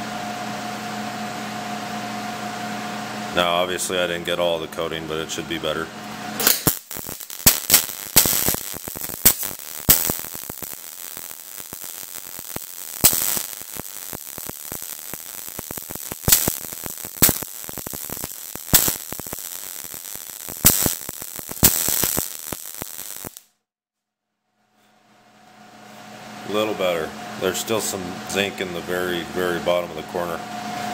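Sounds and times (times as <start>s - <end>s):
welding arc crackling and popping: 6.4s - 23.5s.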